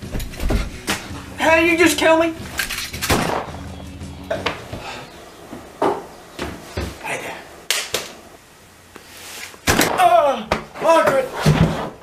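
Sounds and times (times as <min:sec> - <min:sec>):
short knocks and thumps: 0:00.0 - 0:01.1.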